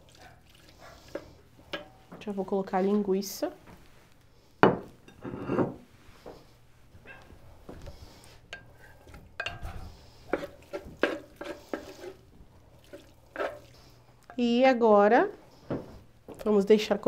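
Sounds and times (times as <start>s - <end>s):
wooden spoon scraping plate and pot: 5.1s - 5.8s, 8.6s - 12.2s, 13.4s - 13.7s.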